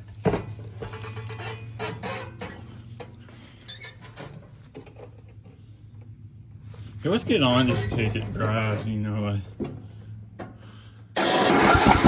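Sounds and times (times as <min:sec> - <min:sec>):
footsteps crunching on straw: 0:06.6 - 0:07.7.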